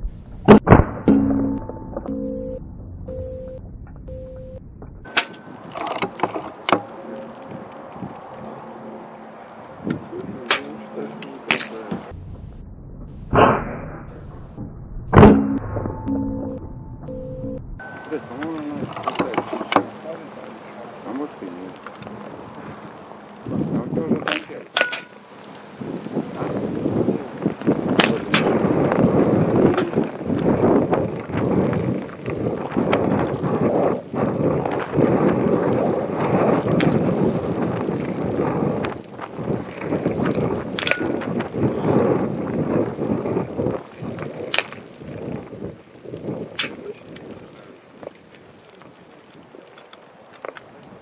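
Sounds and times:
wind buffeting microphone: 0.0 - 51.0
air rifle clicks: 46.6 - 46.8.

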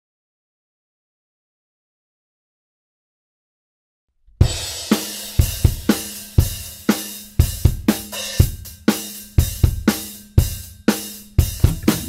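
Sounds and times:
rock drum kit playing: 4.4 - 12.0
full band playing: 11.6 - 12.0.

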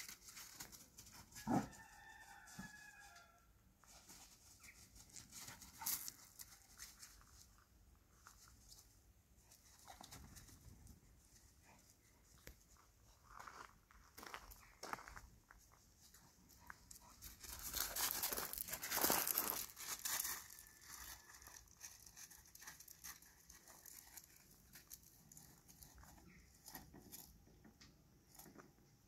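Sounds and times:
faint ticks and rustles: 2.3 - 28.9.

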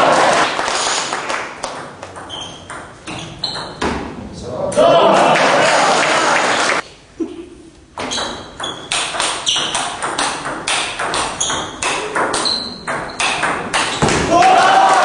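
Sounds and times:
crowd noise: 0.0 - 1.0, 4.7 - 6.8
table tennis ball clicking: 8.1 - 14.0.

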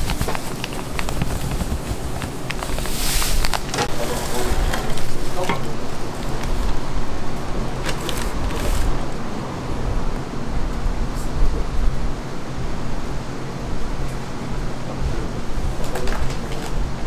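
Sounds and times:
utensils clicking and clattering: 0.0 - 6.9, 7.7 - 9.0.

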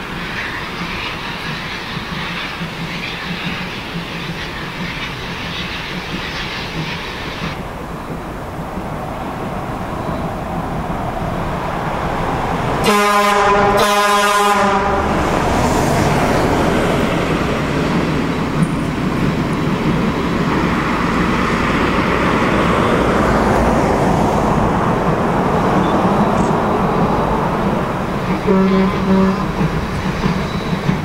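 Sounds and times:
steam train rushing: 0.0 - 31.0
steam whistle blasts: 12.8 - 15.1, 28.4 - 29.5.

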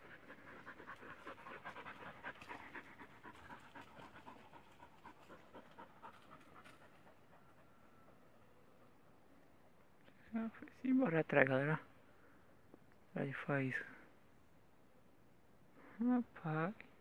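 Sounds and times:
dog panting: 0.0 - 9.0.

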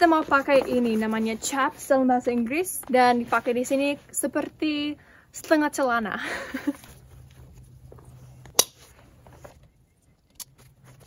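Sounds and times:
heavy fabric rustling: 0.0 - 4.4.

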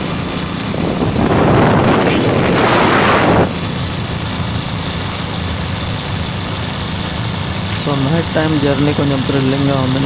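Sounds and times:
wind rushing on microphone: 0.0 - 7.6
motorcycle engine running: 0.0 - 10.0.

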